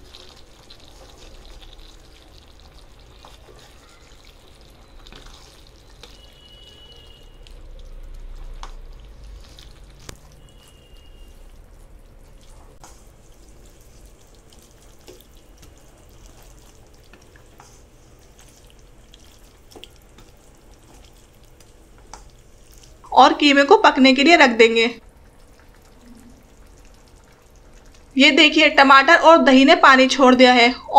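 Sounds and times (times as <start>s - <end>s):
wet squelching and sloshing: 0.0s - 23.2s, 25.0s - 28.2s.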